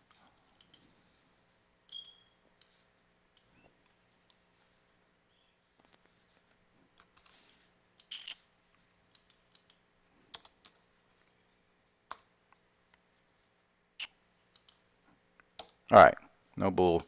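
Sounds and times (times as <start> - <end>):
computer keyboard keystrokes: 9.2 - 10.8.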